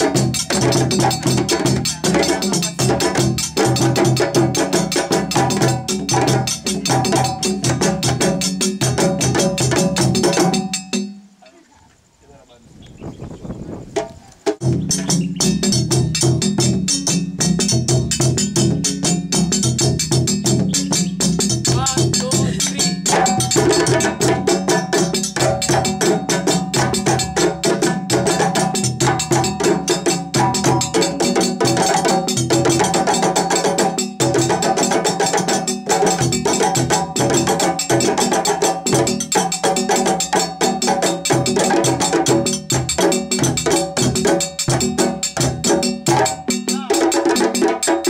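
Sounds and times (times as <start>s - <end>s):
djembes hand drumming: 0.0s - 11.2s, 13.9s - 48.0s
low dundun drums: 0.0s - 11.2s, 13.0s - 48.0s
metal bell ringing: 19.0s - 24.3s.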